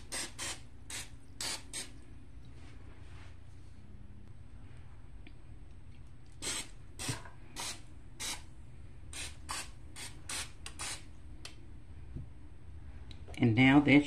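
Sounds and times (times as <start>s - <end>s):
cooking spray hissing bursts: 0.0s - 2.0s, 6.4s - 8.5s, 9.1s - 11.1s.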